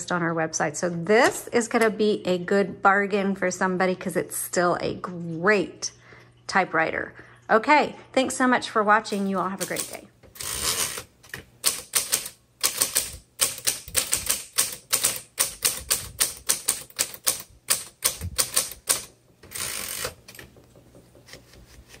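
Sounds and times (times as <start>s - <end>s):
typewriter key strikes: 9.6s - 21.0s.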